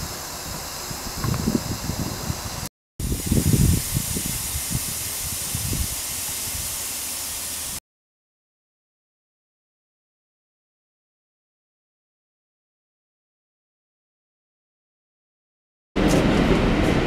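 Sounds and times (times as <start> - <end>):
steam hissing: 0.0 - 7.8.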